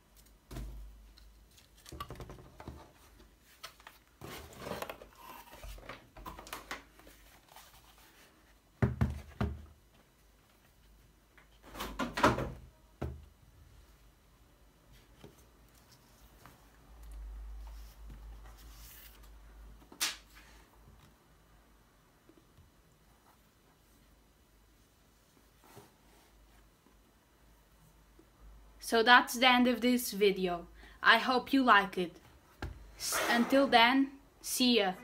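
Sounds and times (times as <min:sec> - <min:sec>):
cardboard and paper rustling: 0:01.4 - 0:08.6.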